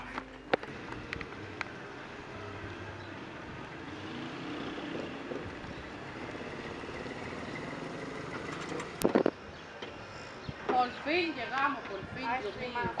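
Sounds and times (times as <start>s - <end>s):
car engine and tyres running: 0.0s - 10.0s.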